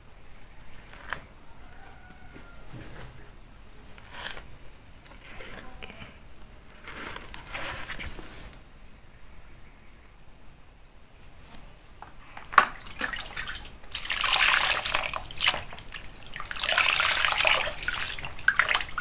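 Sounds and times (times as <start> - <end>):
hand scraping through wood ash: 4.0 - 4.5, 5.1 - 5.7, 6.7 - 8.6.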